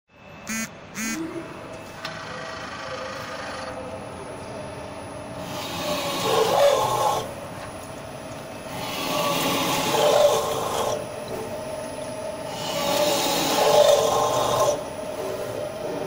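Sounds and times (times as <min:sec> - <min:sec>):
steady machine hum: 0:00.1 - 0:16.0
drill cutting through steel: 0:05.4 - 0:07.3.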